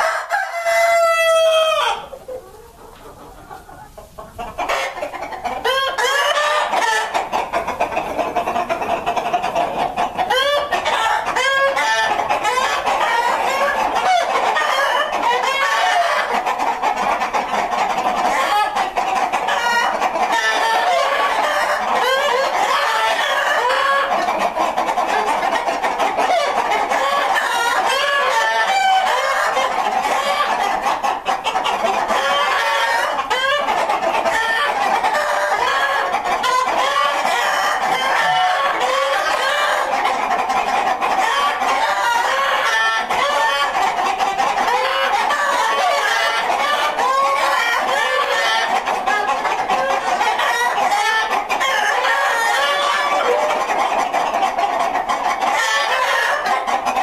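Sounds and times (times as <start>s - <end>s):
rooster crowing: 0.0s - 2.1s
chickens clucking: 0.0s - 57.0s.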